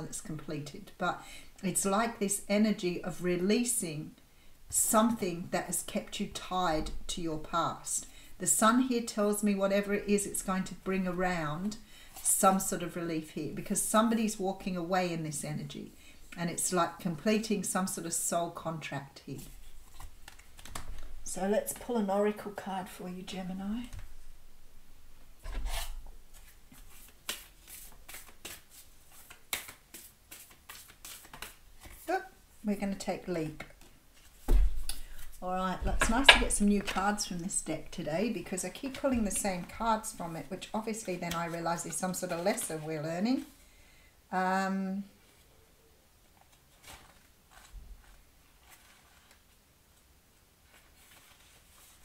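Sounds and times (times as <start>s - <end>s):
cards rustling: 19.4s - 21.9s, 25.4s - 32.1s, 46.4s - 49.6s, 50.7s - 52.0s
paper pages flicking: 26.8s - 32.0s
card snaps while shuffling: 27.2s - 28.6s, 29.2s - 31.6s.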